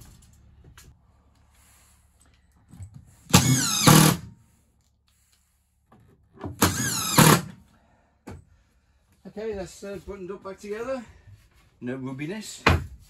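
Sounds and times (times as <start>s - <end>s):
impact driver driving screws: 3.3s - 4.3s, 6.4s - 7.5s.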